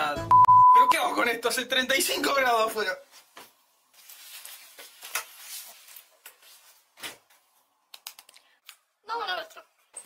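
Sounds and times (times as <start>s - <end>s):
clothing rustling: 3.0s - 7.7s
fabric brushing: 3.1s - 7.0s.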